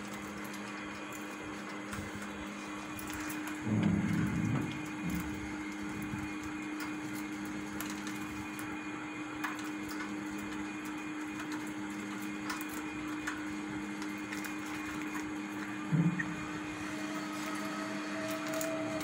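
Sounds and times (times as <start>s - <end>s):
steady low hum: 0.0s - 19.0s
birds pecking in wire cage: 9.4s - 15.8s.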